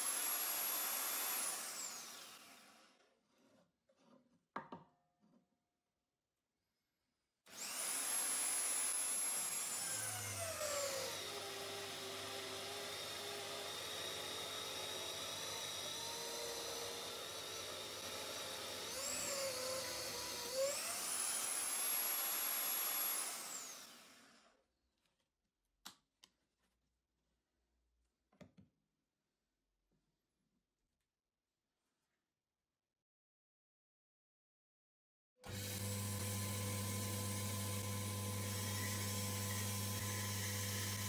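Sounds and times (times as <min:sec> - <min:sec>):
electric drill boring wood: 0:00.0 - 0:03.0, 0:07.5 - 0:24.5, 0:35.4 - 0:41.0.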